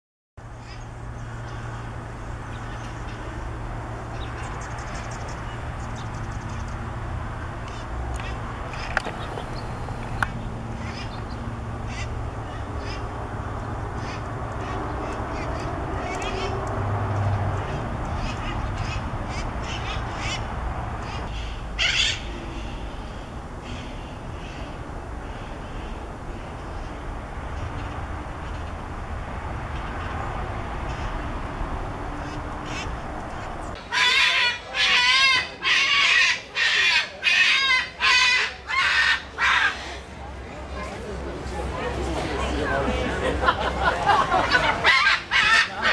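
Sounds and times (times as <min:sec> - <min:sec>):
parakeets squawking: 0:07.7 - 0:13.1, 0:17.6 - 0:22.3, 0:33.8 - 0:40.1, 0:44.5 - 0:45.9
cockatoo screeching: 0:21.8 - 0:22.3, 0:33.8 - 0:40.0, 0:44.8 - 0:45.9.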